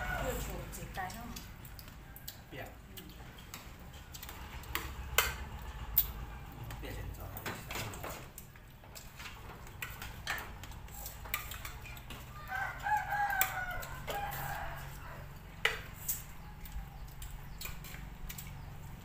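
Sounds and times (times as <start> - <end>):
rooster crowing: 0.0 - 0.7, 12.1 - 15.6
spoons clinking on plates: 7.4 - 14.5.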